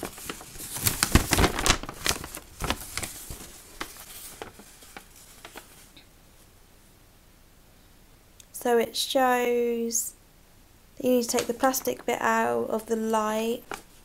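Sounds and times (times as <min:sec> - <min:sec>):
paper rustling and crackling: 0:00.0 - 0:06.1, 0:13.6 - 0:14.0.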